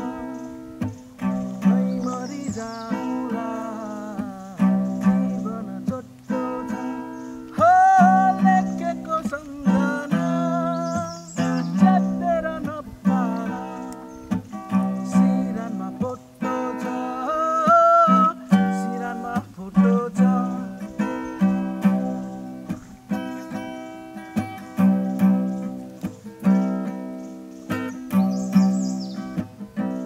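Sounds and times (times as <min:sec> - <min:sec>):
man singing: 0:00.0 - 0:00.5, 0:01.3 - 0:22.8
acoustic guitar strumming chords: 0:00.0 - 0:30.0.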